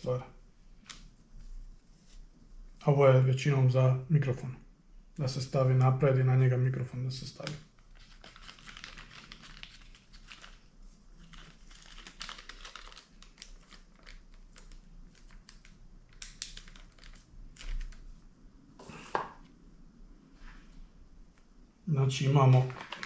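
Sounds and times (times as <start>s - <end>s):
plastic bags crinkling: 7.8s - 18.1s, 22.5s - 23.0s.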